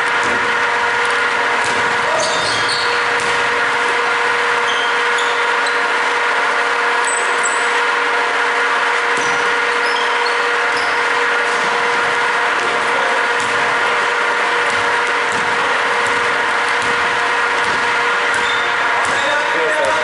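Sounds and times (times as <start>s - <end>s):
droning background hum: 0.0s - 20.0s
basketball shoes squeaking: 1.0s - 3.6s, 4.4s - 6.2s, 7.0s - 7.8s, 9.0s - 11.9s, 14.5s - 20.0s.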